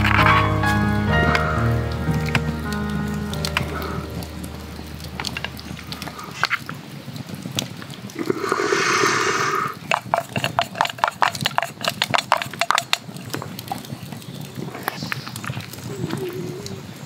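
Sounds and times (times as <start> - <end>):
liquid dripping: 0.0 - 17.0
short hissing rush: 8.2 - 9.8.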